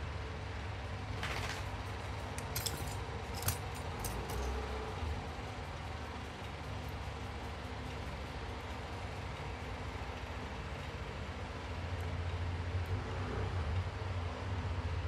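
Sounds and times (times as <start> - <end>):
steady low hum: 0.0 - 15.0
metal clock parts clinking: 2.2 - 4.9.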